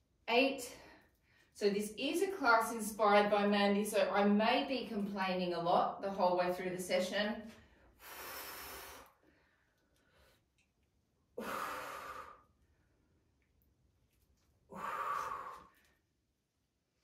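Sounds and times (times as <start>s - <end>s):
woman breathing out hard: 11.4s - 12.5s, 14.7s - 15.8s.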